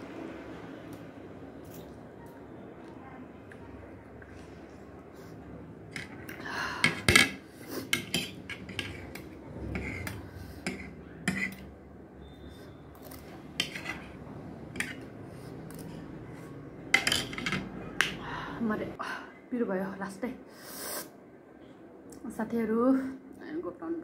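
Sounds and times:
cutlery scraping on a plate: 6.8 - 11.8, 12.7 - 18.2.

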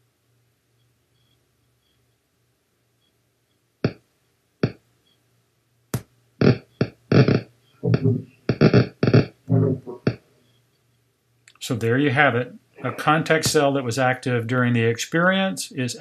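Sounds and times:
neuron spikes popping and buzzing: 3.8 - 4.0, 4.6 - 4.8, 5.9 - 10.3.

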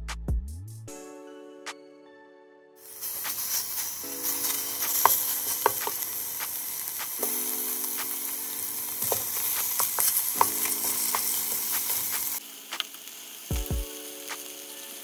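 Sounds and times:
food sizzling in a pan: 2.8 - 15.0
sharp pops and crackles: 3.0 - 14.7.

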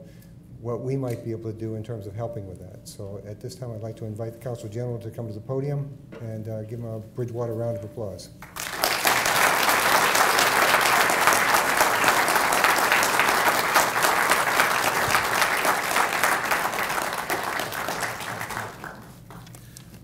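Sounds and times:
audience applause: 8.4 - 19.6.

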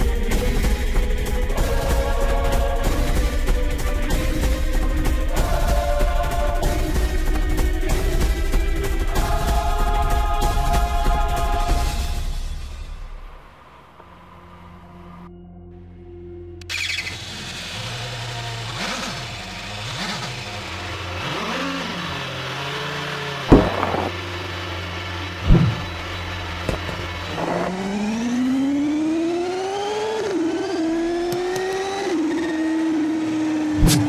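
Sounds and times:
motorcycle engine revving: 16.7 - 34.0
loud thumps: 23.5 - 24.3, 25.4 - 26.0.

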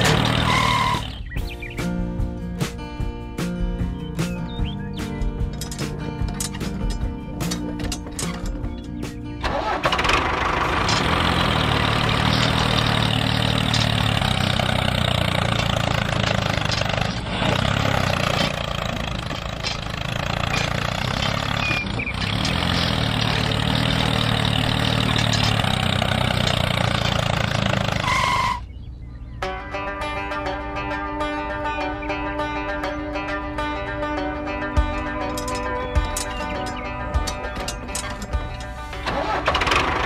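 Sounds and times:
tractor engine rumbling: 0.0 - 40.0.

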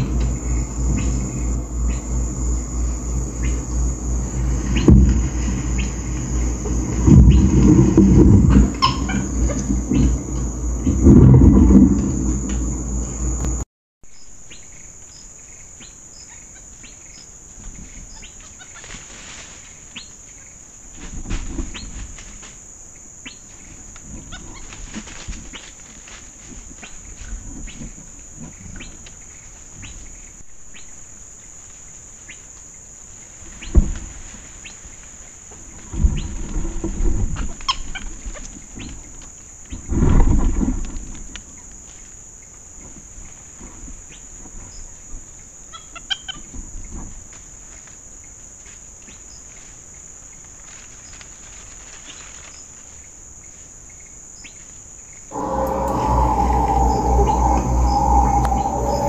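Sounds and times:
insects droning: 0.0 - 59.0
rustling in dry leaf litter: 17.3 - 29.9, 31.4 - 45.6, 46.4 - 55.0.

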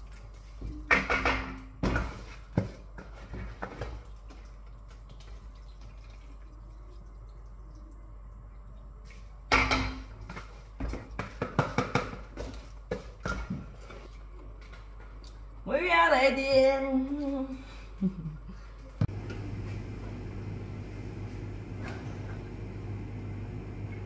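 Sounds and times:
steady low hum: 17.8 - 24.0.

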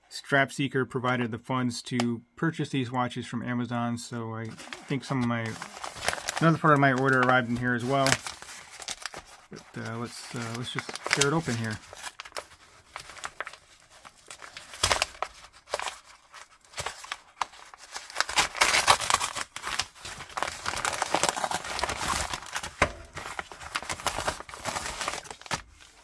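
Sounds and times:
paper crinkling: 4.5 - 26.0
paper envelope being torn open: 4.5 - 26.0.

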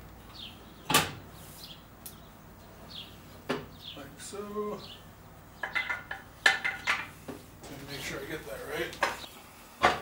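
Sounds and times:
bird chirping: 0.2 - 6.1.

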